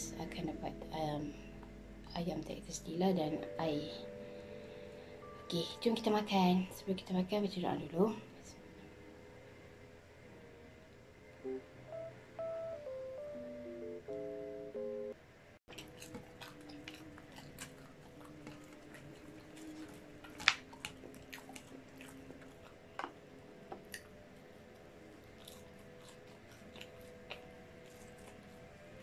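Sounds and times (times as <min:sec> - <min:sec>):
chewing: 0:15.7 - 0:29.0.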